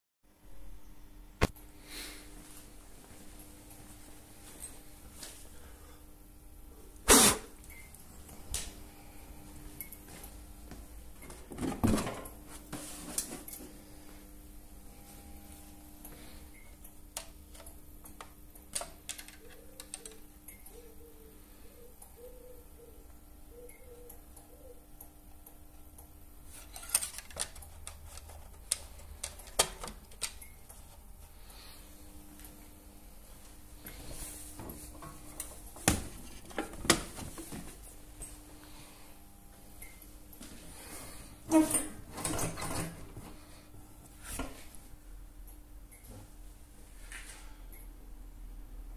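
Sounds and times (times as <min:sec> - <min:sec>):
faint steady hum: 0:00.3 - 0:48.9
thuds and rattles of mower parts: 0:11.4 - 0:12.3.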